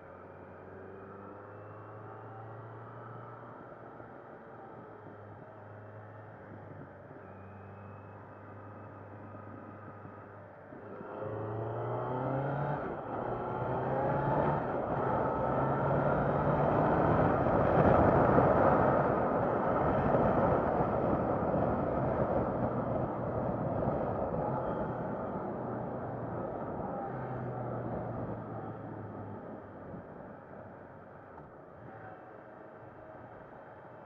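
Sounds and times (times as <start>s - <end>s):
motorcycle engine accelerating: 10.8s - 30.1s
wind rush on microphone: 16.4s - 27.1s.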